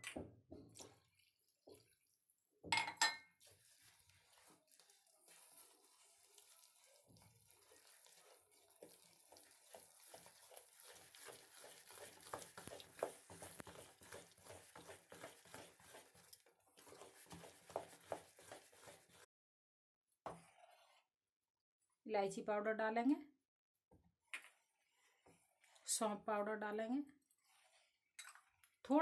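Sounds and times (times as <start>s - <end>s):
batter beaten by hand in bowl: 2.7s - 19.3s.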